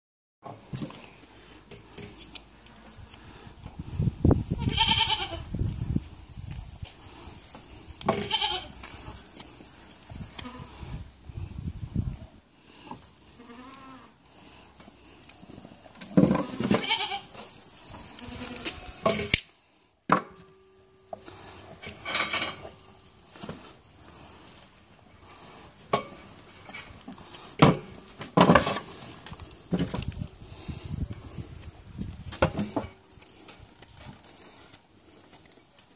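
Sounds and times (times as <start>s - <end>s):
knife clicking and scraping hooves: 0.8s - 3.3s, 6.6s - 10.5s, 14.7s - 19.5s, 24.3s - 35.9s
goat bleating: 4.6s - 5.5s, 8.1s - 8.8s, 10.4s - 10.7s, 13.3s - 14.1s, 16.4s - 17.4s, 18.0s - 19.0s.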